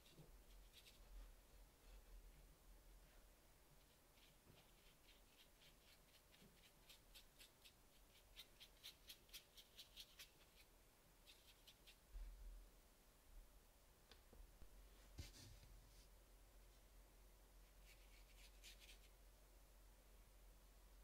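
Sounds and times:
brush strokes on paper: 0:00.0 - 0:12.4, 0:14.8 - 0:16.9, 0:17.6 - 0:19.2.

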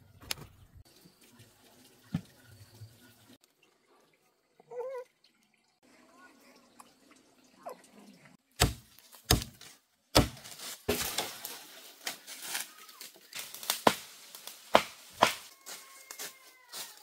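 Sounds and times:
blade chopping into wood: 0:08.6 - 0:11.3, 0:13.7 - 0:14.1, 0:14.7 - 0:15.5.

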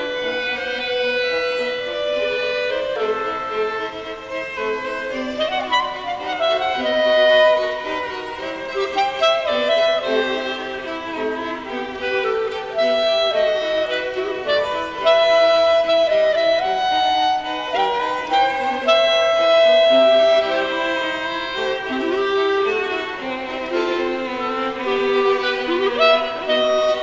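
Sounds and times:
bowed strings playing waltz: 0:00.0 - 0:27.0.

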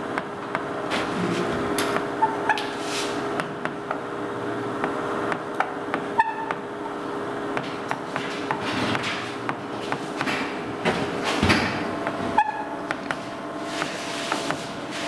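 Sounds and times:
steady hum: 0:00.0 - 0:15.0
chalk tapping and scratching: 0:13.0 - 0:15.0.

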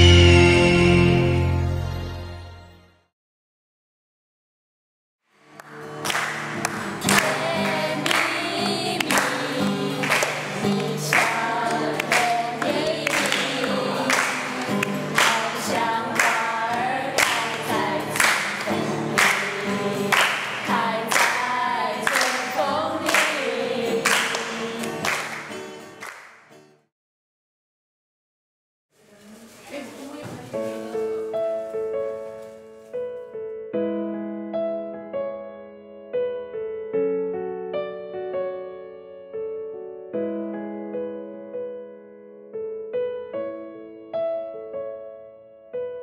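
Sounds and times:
acoustic guitar: 0:00.0 - 0:01.9, 0:05.3 - 0:26.9, 0:29.0 - 0:33.7
hand claps: 0:05.6 - 0:26.7
group singing: 0:07.0 - 0:25.3.

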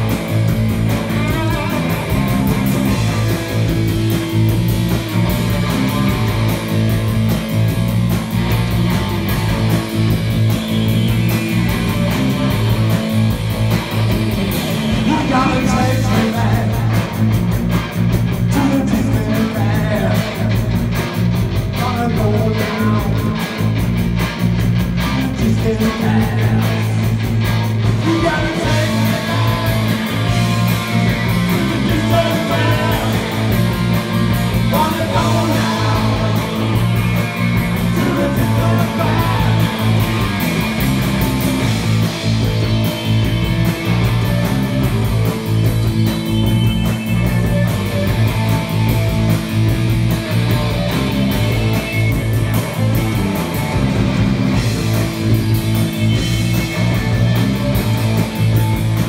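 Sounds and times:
live rock band playing: 0:00.0 - 0:59.0
person singing: 0:15.0 - 0:17.1, 0:31.6 - 0:33.5, 0:34.7 - 0:37.0, 0:37.8 - 0:40.0.

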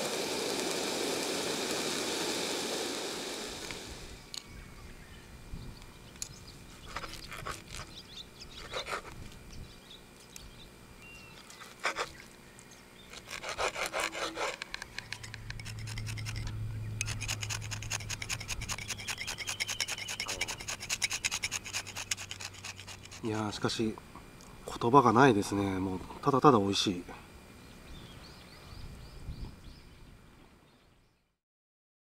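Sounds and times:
low steady hum: 0:00.0 - 0:31.3
knife sawing through steak: 0:08.6 - 0:09.1, 0:11.6 - 0:12.2, 0:13.1 - 0:23.6.

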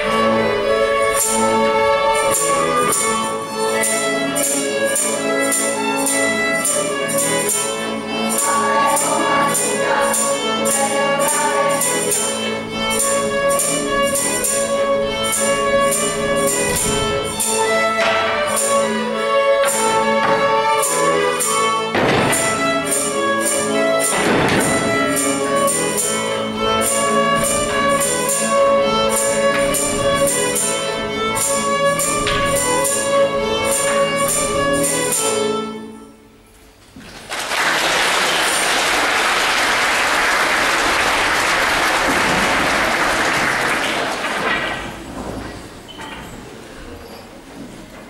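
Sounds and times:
folk band playing dance tune: 0:00.0 - 0:46.4
audience applauding: 0:37.0 - 0:45.0.

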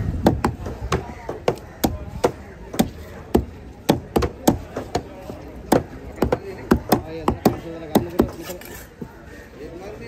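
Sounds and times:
chopper chopping fish on wood: 0:00.2 - 0:08.4.

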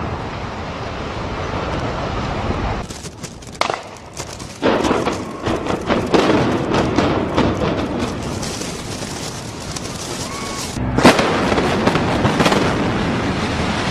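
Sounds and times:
building collapsing rumble: 0:02.3 - 0:13.9
sharp cracks: 0:02.8 - 0:12.8
demolition charges banging: 0:02.8 - 0:13.9.

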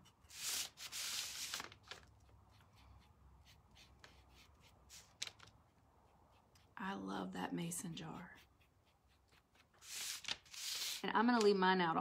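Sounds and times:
paintbrush scratching on wood: 0:02.3 - 0:05.2, 0:06.0 - 0:11.1.

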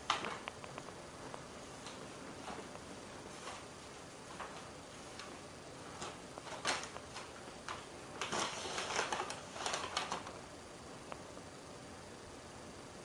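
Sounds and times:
paper bag crinkling: 0:05.2 - 0:10.4.

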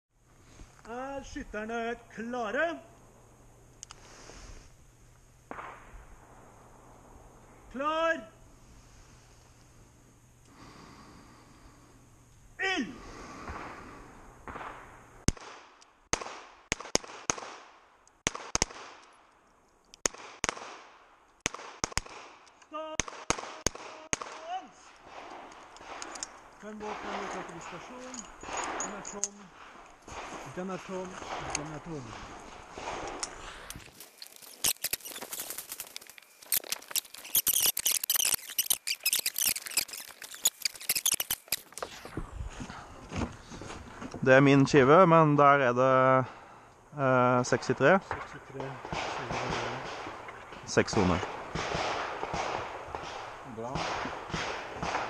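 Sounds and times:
footsteps on gravel and dry leaves: 0:33.3 - 0:44.1.

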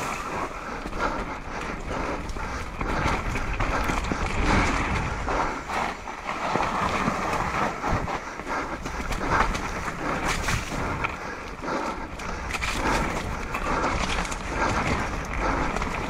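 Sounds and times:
bike knocking and rattling: 0:00.0 - 0:16.0
tyres rolling over dirt: 0:00.0 - 0:16.0
wind noise on microphone: 0:01.9 - 0:11.2.

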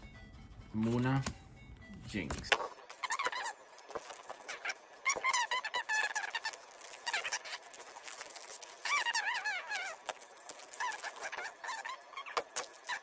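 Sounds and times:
high wavering squeaks: 0:02.6 - 0:13.0
foil wrapper crinkling and tearing: 0:02.8 - 0:13.0.

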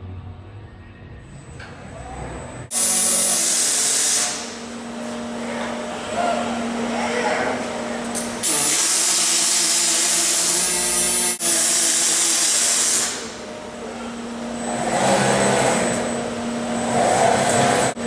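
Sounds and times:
low machine noise: 0:00.0 - 0:18.0
welding arc crackling: 0:02.7 - 0:04.6, 0:08.2 - 0:13.2.

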